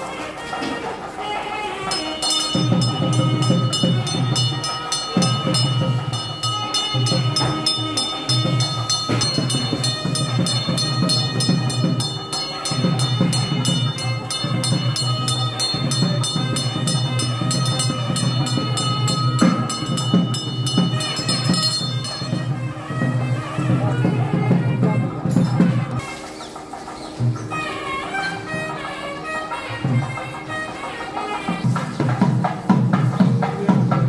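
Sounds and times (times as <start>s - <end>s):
traditional temple music: 0.0s - 34.0s
temple bell ringing rapidly: 1.8s - 32.9s
low drumming: 1.9s - 34.0s.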